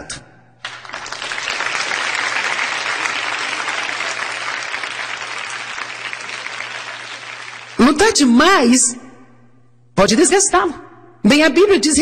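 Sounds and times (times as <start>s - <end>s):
audience applauding: 0.6s - 7.9s.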